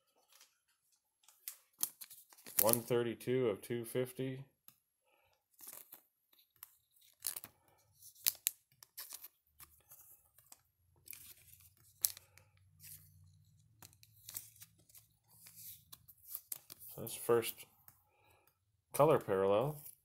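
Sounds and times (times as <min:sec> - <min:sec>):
cards being handled: 0:00.1 - 0:03.0, 0:05.4 - 0:18.6
card pack wrappers tearing: 0:01.5 - 0:02.9, 0:07.0 - 0:13.0.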